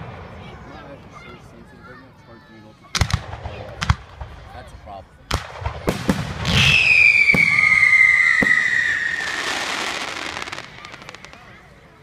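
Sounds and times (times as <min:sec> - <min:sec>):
firework bangs: 0:02.9 - 0:04.6, 0:05.3 - 0:11.5
firework cracks: 0:02.9 - 0:04.6, 0:05.3 - 0:11.6
firework hiss: 0:06.1 - 0:11.5
firework whistle falling in pitch: 0:06.5 - 0:10.1.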